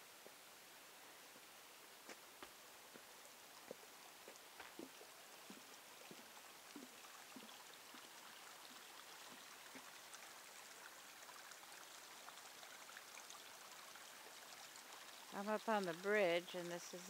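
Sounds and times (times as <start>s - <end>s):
creek trickling over rocks: 0.0s - 17.0s
soft footsteps: 2.0s - 8.0s.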